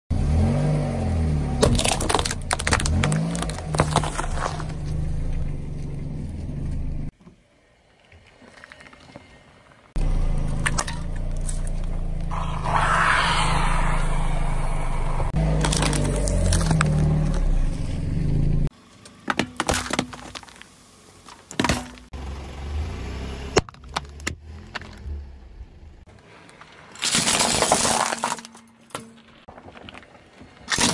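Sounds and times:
car engine running low: 0.1s - 7.1s, 10.0s - 18.7s
tyre crushing small objects: 1.6s - 5.1s, 15.4s - 17.5s, 19.1s - 22.1s, 26.5s - 30.9s.

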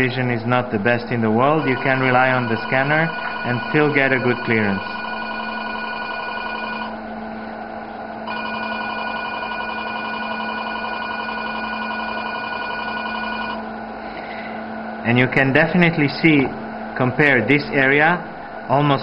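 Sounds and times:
low steady hum: 0.0s - 19.0s
electronic warning tone: 1.2s - 7.4s, 8.1s - 13.7s.

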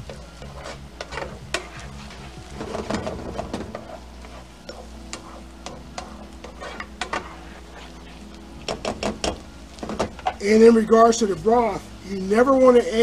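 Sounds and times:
wooden spoon scraping a pan: 0.0s - 10.6s
broth simmering sizzle: 0.0s - 13.0s.

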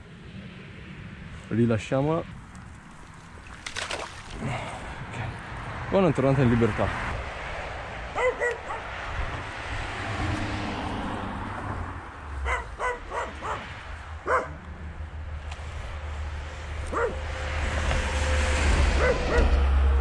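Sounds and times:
dog barking: 8.1s - 9.0s, 12.4s - 14.6s, 16.9s - 17.2s, 19.0s - 19.5s.

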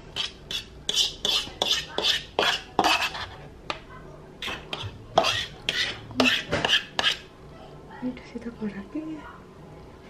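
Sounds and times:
metal utensil scraping a dish: 0.2s - 3.5s, 4.4s - 7.3s.

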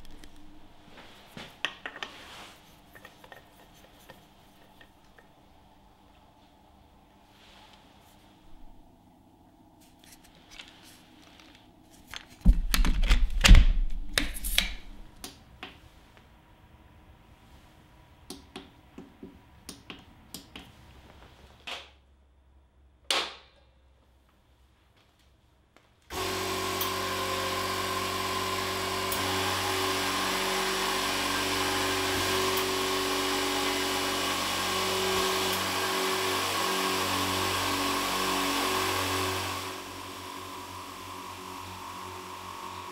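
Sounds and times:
air compressor running: 26.1s - 42.9s.

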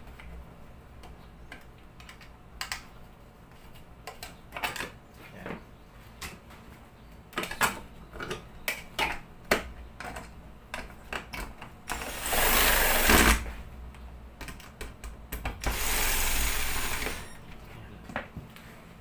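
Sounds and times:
power drill driving screws: 11.9s - 13.5s, 15.6s - 17.4s.

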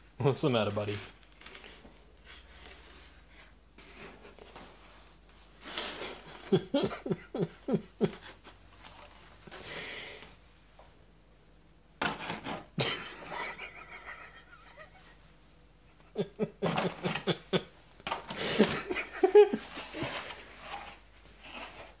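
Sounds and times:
person laughing: 6.0s - 8.4s, 12.8s - 15.2s, 15.9s - 17.8s, 18.4s - 20.1s.

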